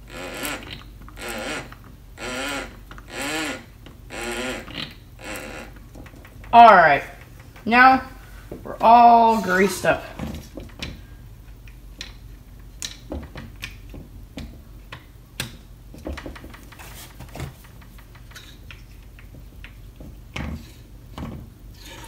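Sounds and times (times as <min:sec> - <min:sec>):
small parts clicking and knocking: 0:00.1 - 0:06.6, 0:10.5 - 0:16.8, 0:17.6 - 0:21.4.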